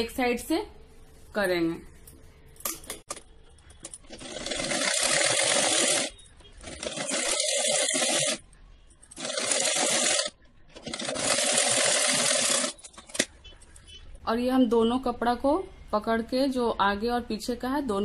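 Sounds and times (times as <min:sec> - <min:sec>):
sewing machine stitching fabric: 0:03.8 - 0:08.4, 0:09.1 - 0:13.3.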